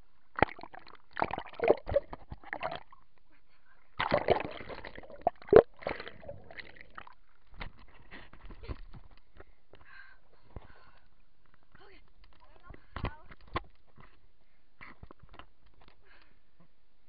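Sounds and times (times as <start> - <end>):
water splashing and sloshing: 0.3 - 3.1, 4.0 - 8.0.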